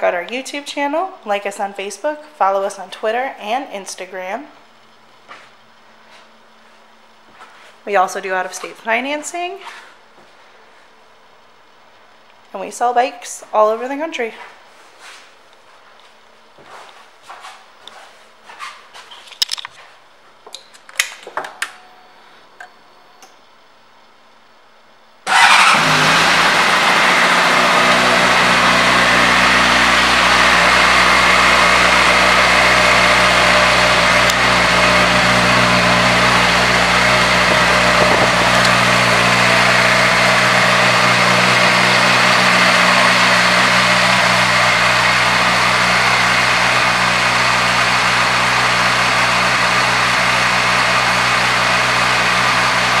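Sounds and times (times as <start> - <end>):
motorcycle engine starting and idling: 25.2 - 53.0.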